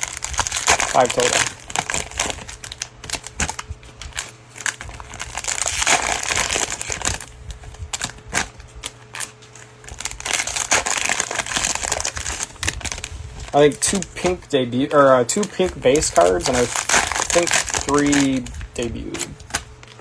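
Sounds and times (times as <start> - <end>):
cards rustling and clicking: 0.0 - 20.0
plastic wrapper crinkling and tearing: 0.0 - 20.0.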